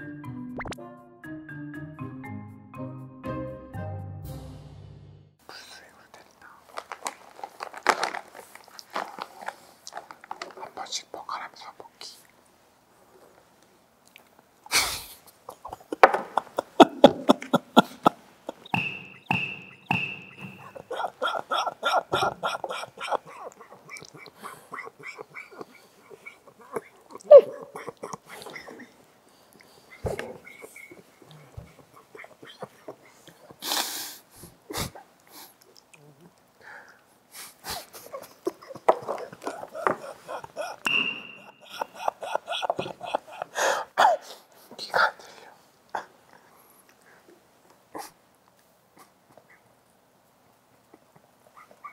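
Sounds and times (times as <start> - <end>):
chewing crunchy chips: 6.4 - 11.4
stifled giggling: 14.7 - 18.8, 19.8 - 29.1, 29.9 - 33.6, 37.7 - 44.4
high whistling squeak: 18.7 - 20.8, 40.9 - 41.7
squeaky toy hammer smack: 18.7 - 20.8, 40.8 - 41.6.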